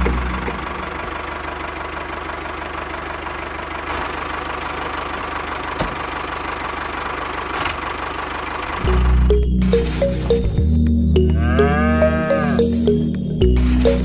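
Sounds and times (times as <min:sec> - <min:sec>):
model tractor running: 0:00.0 - 0:09.4.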